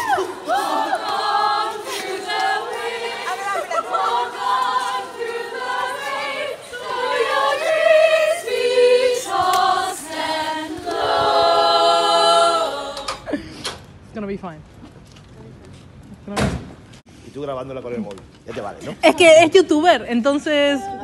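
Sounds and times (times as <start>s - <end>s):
group singing a cappella: 0.0s - 13.4s.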